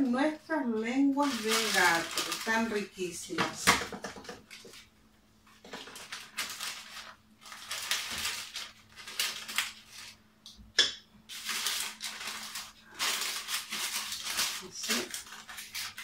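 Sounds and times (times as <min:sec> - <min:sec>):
paper piping bag crinkling: 0:00.0 - 0:03.3, 0:05.7 - 0:10.2, 0:11.3 - 0:16.0.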